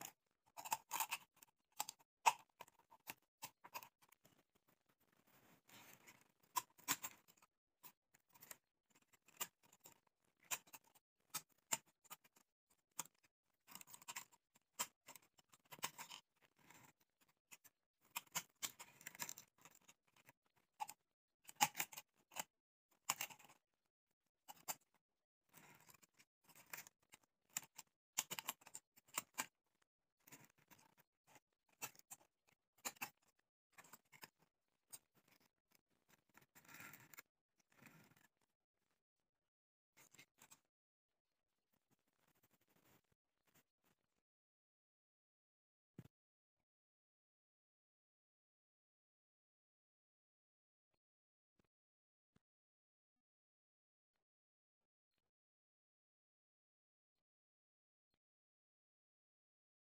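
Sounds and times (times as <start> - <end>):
scissors cutting plastic: 0.0 - 4.5, 5.8 - 23.6, 25.6 - 29.5.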